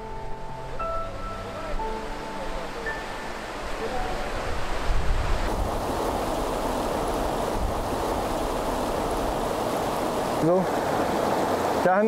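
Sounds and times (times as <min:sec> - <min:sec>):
river water rushing over rocks: 0:01.8 - 0:12.0
wind buffeting microphone: 0:03.6 - 0:11.8.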